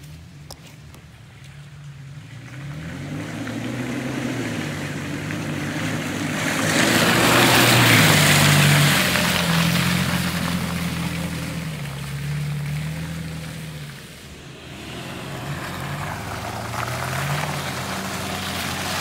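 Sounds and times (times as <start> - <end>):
tyres spraying mud and water: 1.0 - 19.0
truck engine pulling hard: 2.1 - 19.0.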